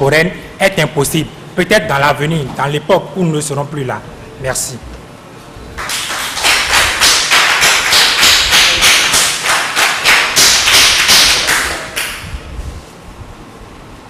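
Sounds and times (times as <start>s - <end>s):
group clapping in rhythm: 5.7s - 12.4s.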